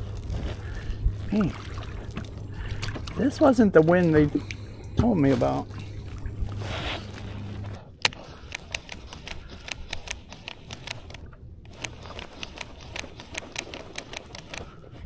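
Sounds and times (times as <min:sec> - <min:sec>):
low rumble: 0:00.0 - 0:08.6
light clicks and ticks: 0:08.0 - 0:14.8.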